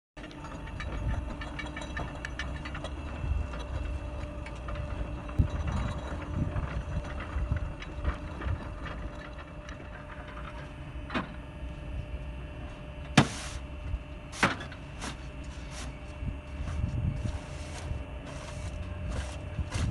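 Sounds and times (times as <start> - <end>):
metallic rattling and clatter: 0.2 - 10.6
motor hum: 0.2 - 19.9.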